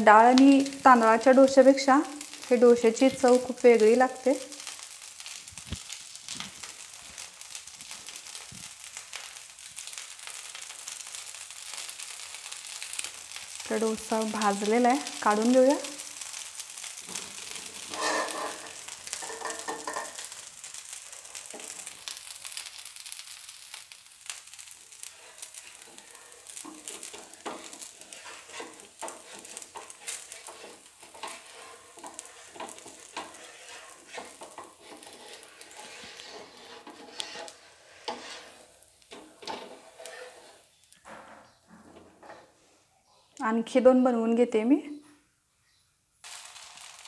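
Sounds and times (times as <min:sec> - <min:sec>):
batter sizzling on hot pan: 0:00.0 - 0:41.6, 0:46.2 - 0:47.0
spatula scraping pan: 0:11.7 - 0:20.8, 0:24.9 - 0:40.8.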